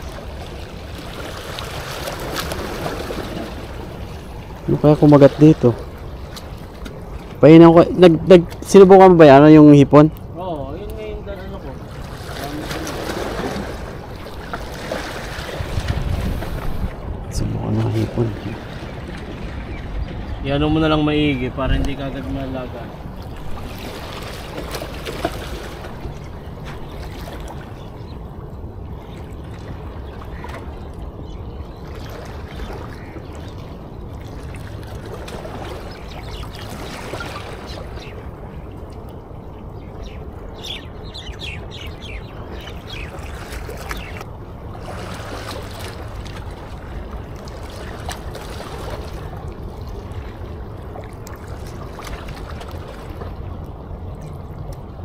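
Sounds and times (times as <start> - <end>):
sea water lapping at shore: 0.0 - 55.0.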